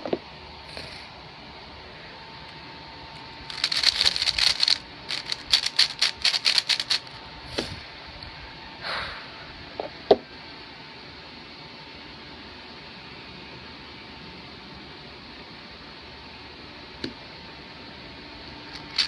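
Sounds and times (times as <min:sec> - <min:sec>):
puzzle cube clicking: 0:03.5 - 0:07.0.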